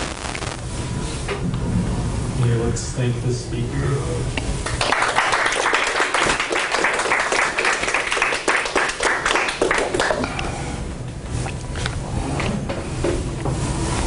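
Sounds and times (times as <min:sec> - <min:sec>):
audience applauding: 0:04.6 - 0:10.3.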